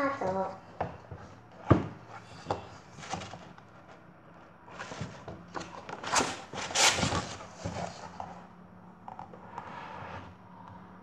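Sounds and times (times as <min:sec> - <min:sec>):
paper rustling and flapping: 0:04.7 - 0:08.1.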